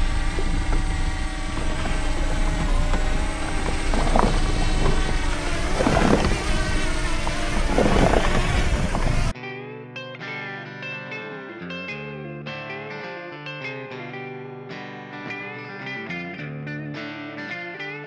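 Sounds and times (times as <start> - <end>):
drone propellers humming: 0.0 - 9.3
wind buffeting microphone: 0.0 - 9.3
guitar music: 0.0 - 18.0.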